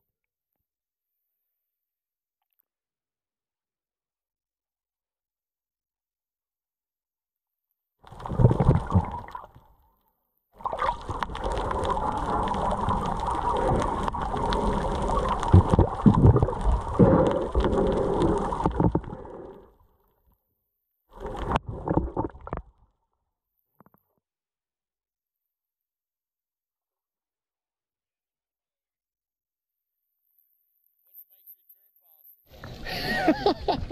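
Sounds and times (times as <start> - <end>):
underwater sloshing and gurgling: 8.0 - 20.4, 21.1 - 24.0.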